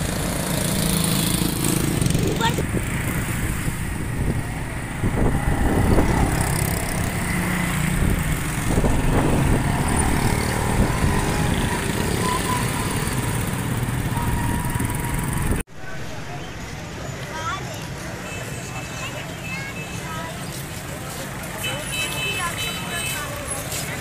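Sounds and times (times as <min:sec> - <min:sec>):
road and wind noise: 0:00.0 - 0:24.0.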